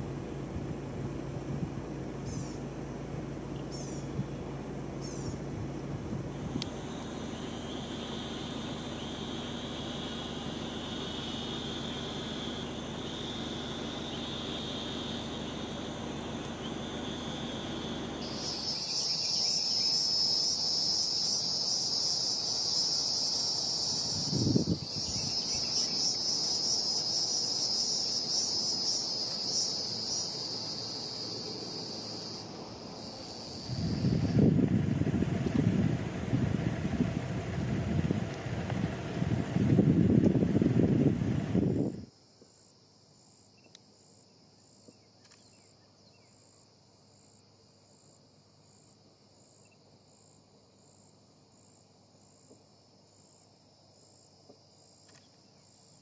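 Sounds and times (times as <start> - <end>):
high-pitched insect drone: 6.6 - 38.1.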